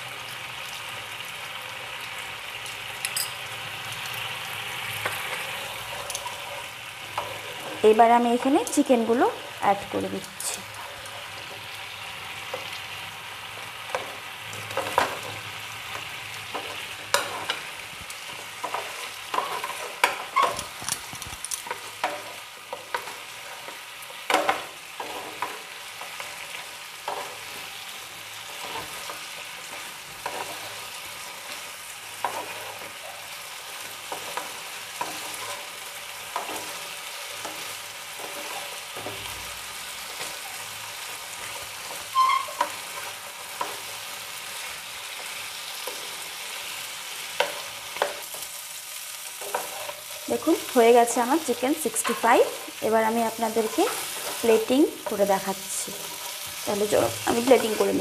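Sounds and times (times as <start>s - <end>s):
chicken sizzling in a frying pan: 0.0s - 58.0s
spatula knocking and scraping pan: 13.9s - 21.0s, 21.6s - 26.4s.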